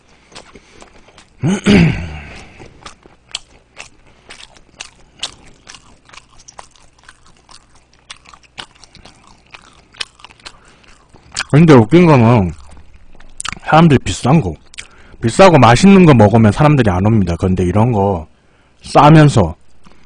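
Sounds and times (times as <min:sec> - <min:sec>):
person chewing with wet smacking: 0:00.0 - 0:01.4, 0:02.2 - 0:13.7, 0:14.4 - 0:15.0.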